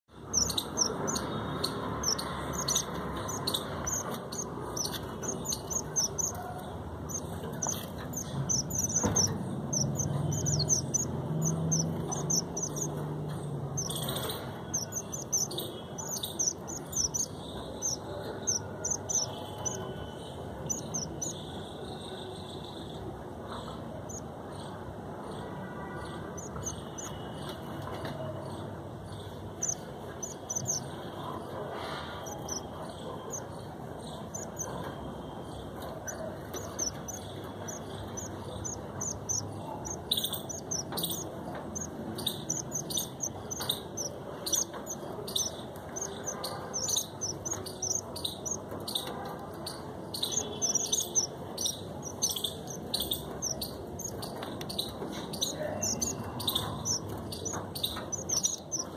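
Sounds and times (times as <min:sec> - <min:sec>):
steady background noise: 0:00.1 - 0:58.9
high-pitched bird chirps: 0:00.2 - 0:13.0, 0:13.8 - 0:19.9, 0:29.6 - 0:30.9, 0:32.2 - 0:32.6, 0:36.0 - 0:58.9.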